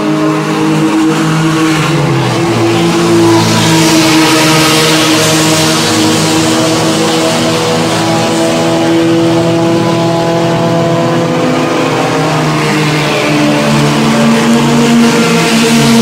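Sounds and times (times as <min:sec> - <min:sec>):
race car engines at speed: 0:00.0 - 0:16.0.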